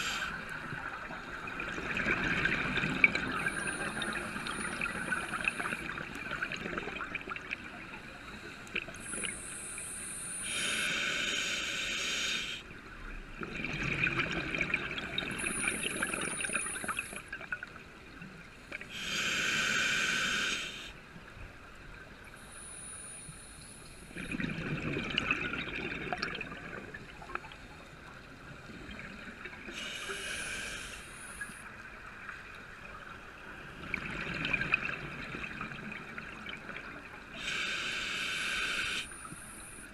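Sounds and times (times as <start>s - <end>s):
regulator inhalation hiss: 0.0s - 0.4s, 9.1s - 12.6s, 18.9s - 21.0s, 29.7s - 31.6s, 37.4s - 39.9s
exhaled air bubbling: 0.0s - 9.9s, 13.3s - 17.8s, 24.1s - 27.6s, 33.6s - 37.6s.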